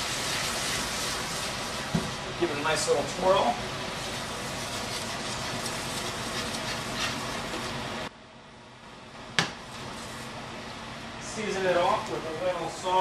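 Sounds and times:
sauce sizzling in a pan: 0:00.0 - 0:02.4.

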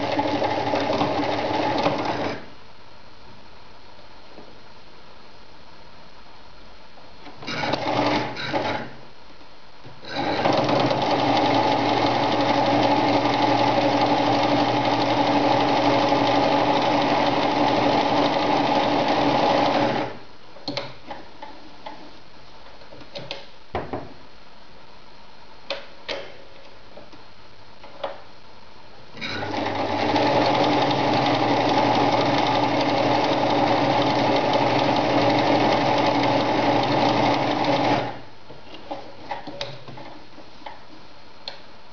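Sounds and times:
sewing machine stitching: 0:00.0 - 0:02.5, 0:07.4 - 0:09.0, 0:10.0 - 0:20.2, 0:29.2 - 0:38.2.

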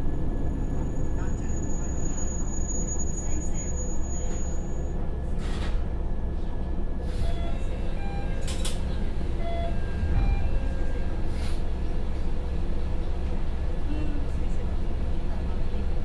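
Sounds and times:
diesel engine idling: 0:06.0 - 0:16.0
short beeps: 0:07.2 - 0:08.6, 0:09.4 - 0:11.0.

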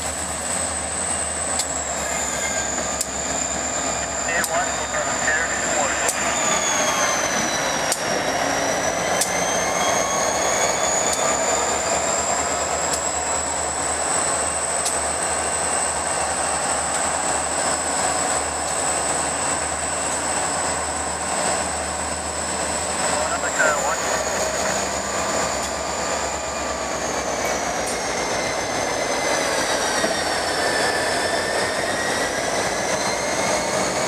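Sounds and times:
locomotive engines whining: 0:00.0 - 0:34.0
rail joint clicks: 0:01.4 - 0:01.9, 0:02.7 - 0:03.6, 0:04.4 - 0:04.6, 0:06.8 - 0:09.9, 0:10.6 - 0:21.6, 0:24.4 - 0:25.9, 0:26.9 - 0:30.9.

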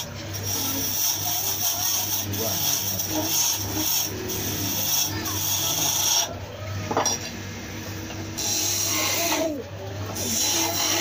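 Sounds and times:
lathe tool scraping wood: 0:00.0 - 0:06.4, 0:08.4 - 0:09.5, 0:10.1 - 0:11.0
lathe motor humming: 0:00.0 - 0:06.6.

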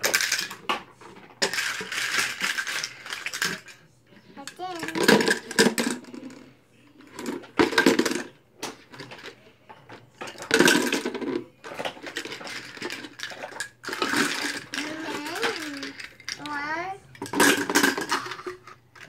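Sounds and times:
metal lids clattering into canister: 0:17.2 - 0:19.0.

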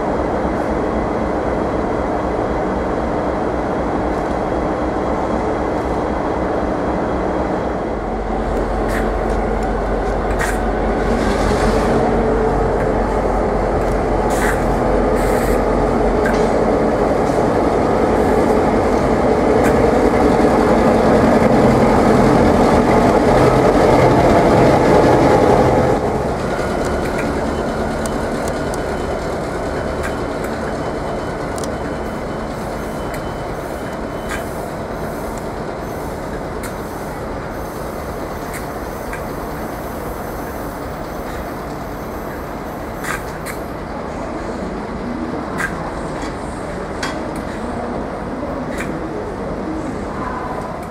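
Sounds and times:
diesel locomotive engine passing: 0:00.0 - 0:50.9
wheels clicking on track: 0:17.2 - 0:37.1.

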